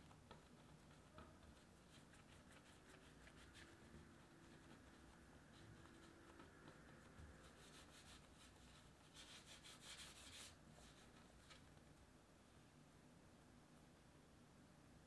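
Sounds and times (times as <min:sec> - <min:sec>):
hands rolling dough: 0:00.0 - 0:11.8.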